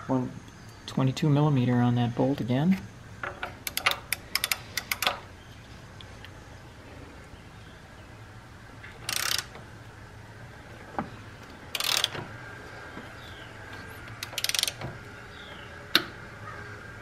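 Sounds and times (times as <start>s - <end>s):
hand ratchet clicking: 3.2s - 5.2s, 9.0s - 9.6s, 11.7s - 12.3s, 14.0s - 14.9s.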